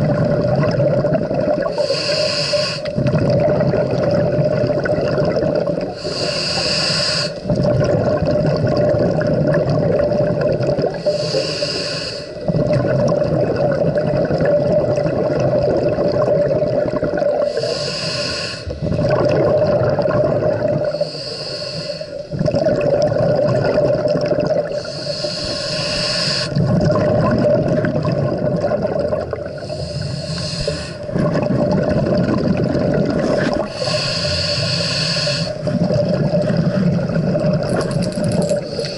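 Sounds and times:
exhaled air bubbling: 0.0 - 38.9
regulator inhale hiss: 1.6 - 3.0, 6.0 - 7.5, 10.9 - 12.5, 17.4 - 18.9, 20.8 - 22.3, 24.7 - 26.6, 29.4 - 31.1, 33.6 - 35.7, 38.6 - 38.9.

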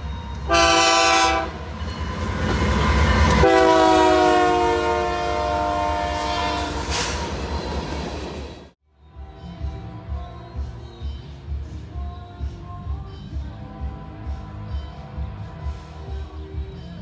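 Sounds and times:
train engines rumbling: 0.0 - 17.0
locomotive air horn blasts: 0.5 - 1.6, 3.4 - 7.2.

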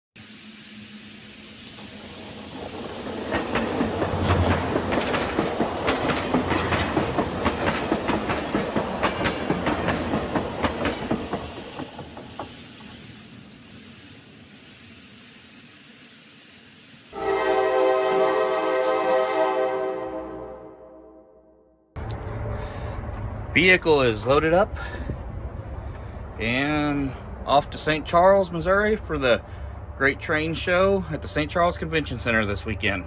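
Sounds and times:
model train wheels clattering: 3.3 - 13.2.

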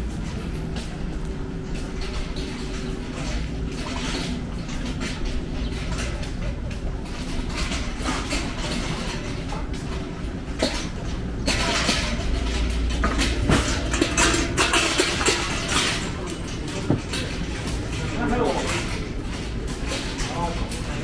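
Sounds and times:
traffic rumble: 0.0 - 21.0
short knocks and clatter: 10.6 - 17.9.

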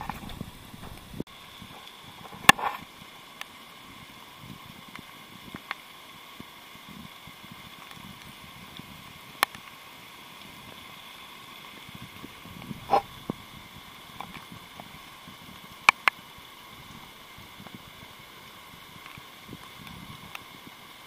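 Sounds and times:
faint rustling: 0.0 - 1.2, 12.4 - 13.6
sharp clicks: 0.0 - 1.2.

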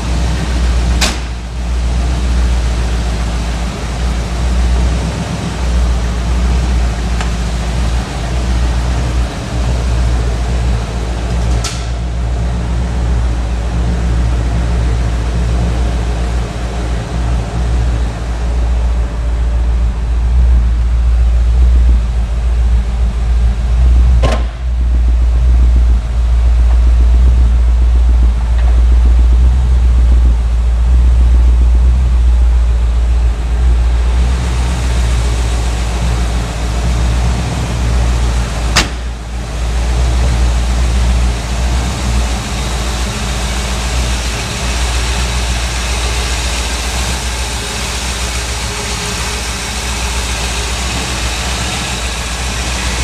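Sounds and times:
car engine idling: 0.0 - 53.0.

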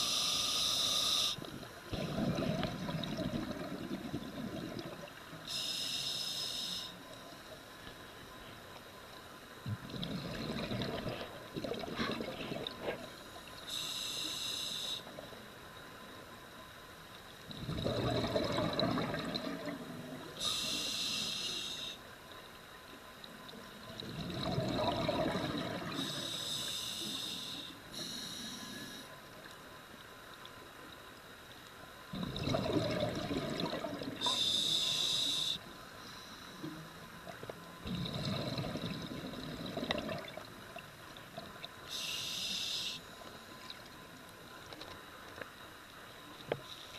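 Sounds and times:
regulator inhale hiss: 0.0 - 1.5, 5.4 - 7.2, 13.6 - 15.2, 20.4 - 22.1, 25.9 - 29.3, 34.2 - 36.9, 41.8 - 43.2
exhaled bubbles rumbling: 1.9 - 5.2, 9.6 - 13.0, 17.5 - 20.2, 23.9 - 26.0, 32.1 - 34.4, 37.8 - 41.5.

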